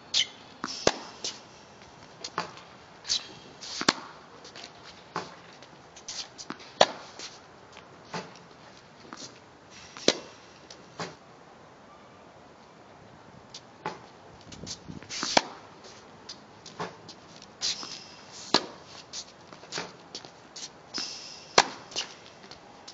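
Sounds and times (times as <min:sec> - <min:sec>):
tennis racket striking balls: 0:00.2 - 0:05.5, 0:06.1 - 0:07.4, 0:09.0 - 0:11.2, 0:13.8 - 0:15.7, 0:16.3 - 0:22.9.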